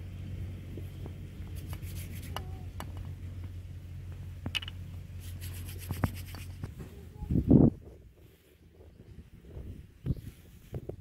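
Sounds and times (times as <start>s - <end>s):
steady low hum: 0.0s - 11.0s
hands rubbing dough: 1.5s - 2.5s, 5.2s - 6.7s.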